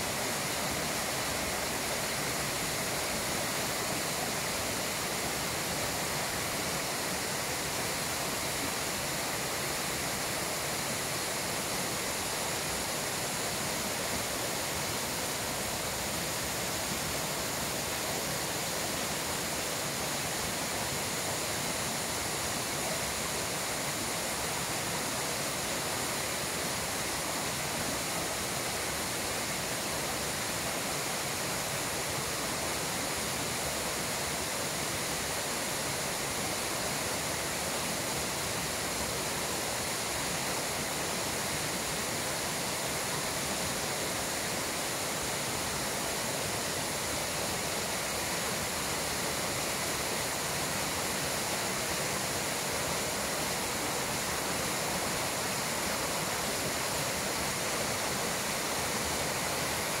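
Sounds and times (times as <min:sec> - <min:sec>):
waterfall rushing: 0:00.0 - 1:00.0.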